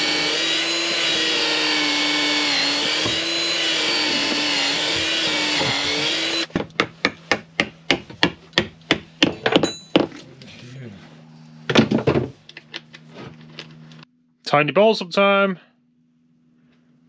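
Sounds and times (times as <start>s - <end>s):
power drill running: 0.0s - 6.5s.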